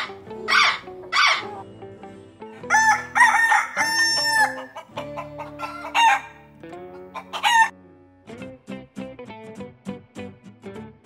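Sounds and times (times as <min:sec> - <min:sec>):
soft background music: 0:00.0 - 0:11.0
rooster crowing: 0:02.7 - 0:04.9, 0:05.5 - 0:06.4, 0:07.2 - 0:07.7.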